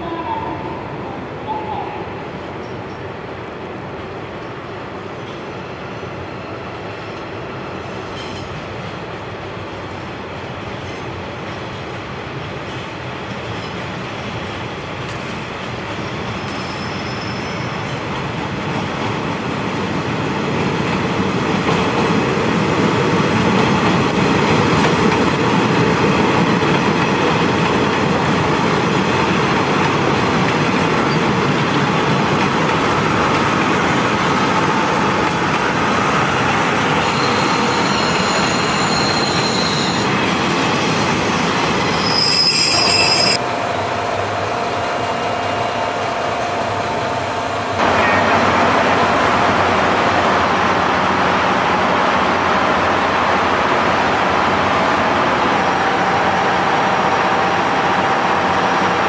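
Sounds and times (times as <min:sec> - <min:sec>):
train rumbling on rails: 0:00.0 - 0:59.0
wheel squeal: 0:16.4 - 0:17.8, 0:37.0 - 0:40.1, 0:41.9 - 0:43.4.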